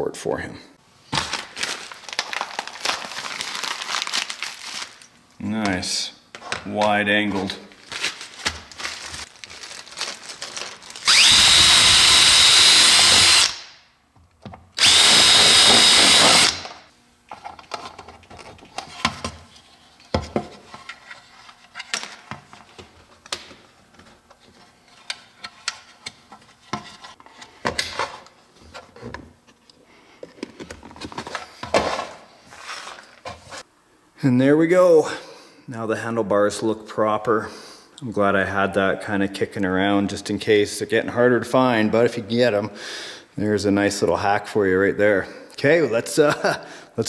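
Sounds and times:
cordless drill whining: 11.0 - 13.6, 14.8 - 16.7.

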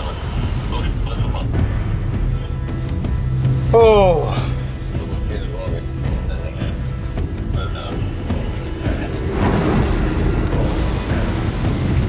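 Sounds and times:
background music: 0.0 - 12.0
storm wind: 6.9 - 12.0.

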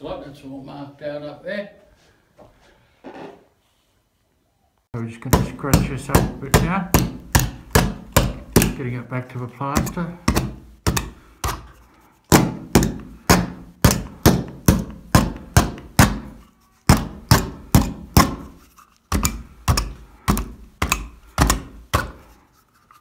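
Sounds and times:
knife hacking into plaster: 5.3 - 9.0, 9.7 - 22.4.

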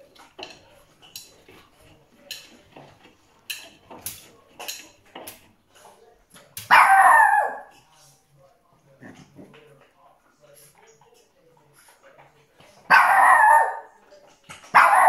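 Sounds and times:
dog yelping bark: 6.7 - 7.7, 12.9 - 13.9, 14.7 - 15.0.

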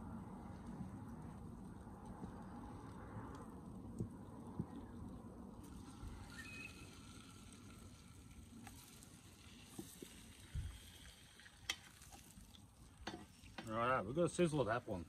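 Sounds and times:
meat sizzling in hot oil: 5.6 - 13.6.

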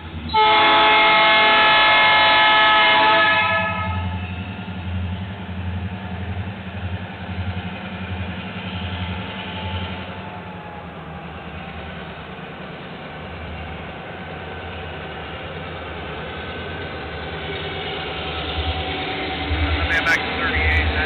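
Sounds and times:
heavy engine idling: 10.0 - 21.0.

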